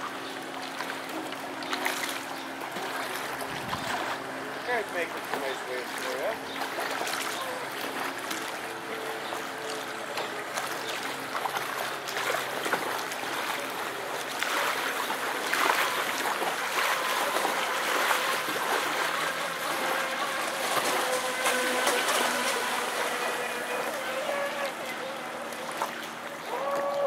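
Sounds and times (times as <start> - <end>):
water spray and ripples: 0.0 - 27.0
electric motor whining: 17.0 - 25.7.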